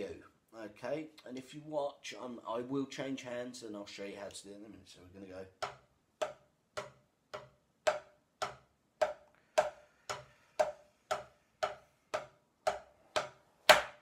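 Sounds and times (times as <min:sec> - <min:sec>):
drumsticks hitting practice pad: 0:05.6 - 0:14.0.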